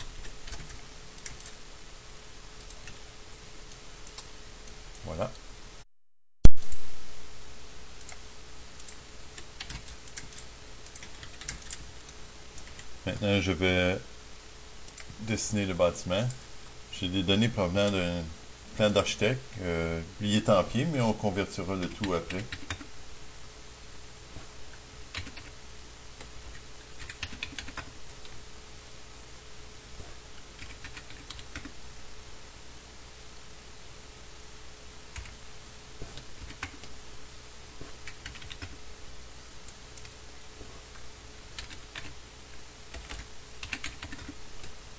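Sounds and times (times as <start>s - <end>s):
keyboard keys clicking: 0.0s - 1.6s, 8.8s - 11.8s, 25.1s - 25.5s, 26.2s - 27.9s, 38.0s - 38.8s, 41.6s - 42.2s, 42.9s - 44.4s
faint steady hum: 0.0s - 44.9s.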